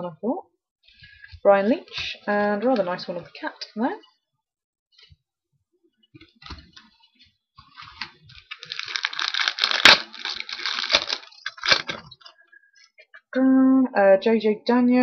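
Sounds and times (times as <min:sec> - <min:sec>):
foil wrapper crinkling and tearing: 0:07.6 - 0:12.3
foil wrapper sharp snap: 0:08.0 - 0:12.1.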